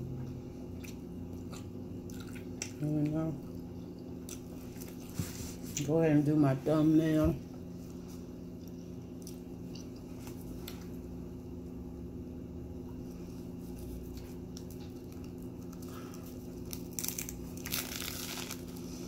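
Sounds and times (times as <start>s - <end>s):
person chewing food: 0.0s - 2.8s, 3.4s - 5.2s
steady low hum: 0.0s - 19.0s.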